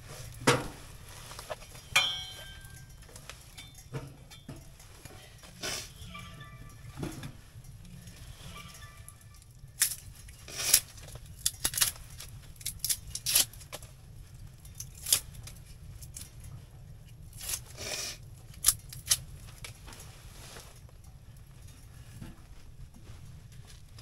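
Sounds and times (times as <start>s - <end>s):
firewood snapping: 10.7s - 13.8s.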